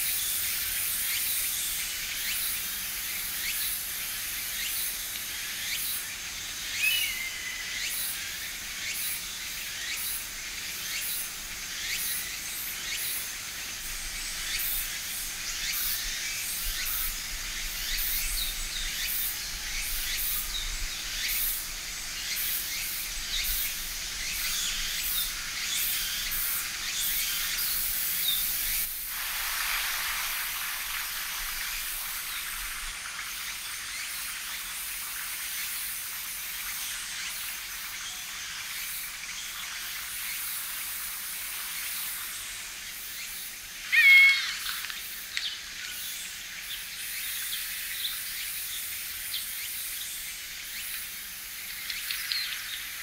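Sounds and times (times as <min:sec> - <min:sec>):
faint bird chirps: 0:43.2 - 0:48.2.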